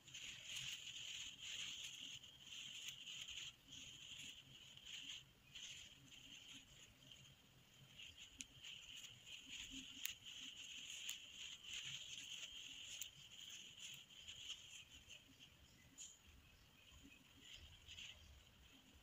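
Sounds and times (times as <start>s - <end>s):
crochet hook rustling thread: 0.0s - 19.0s
faint high-pitched hiss: 0.0s - 19.0s.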